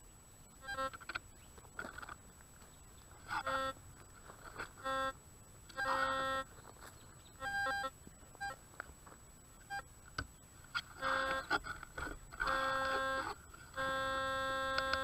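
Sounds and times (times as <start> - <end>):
metal detector beeps: 3.3 - 3.8, 4.8 - 6.6, 7.4 - 8.6, 11.0 - 11.6, 12.3 - 15.0.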